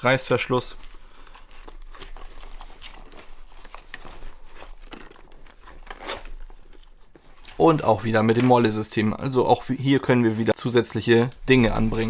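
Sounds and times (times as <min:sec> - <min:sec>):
nylon bag rustling: 0:00.7 - 0:07.8.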